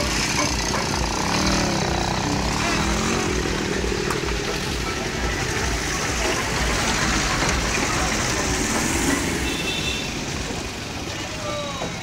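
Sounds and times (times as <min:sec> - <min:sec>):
road and wind noise: 0:00.0 - 0:12.0
vehicle engines running: 0:00.0 - 0:12.0.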